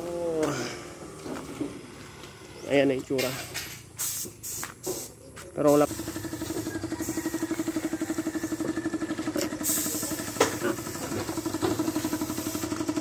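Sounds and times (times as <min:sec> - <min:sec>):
small engine idling: 0:05.7 - 0:13.0.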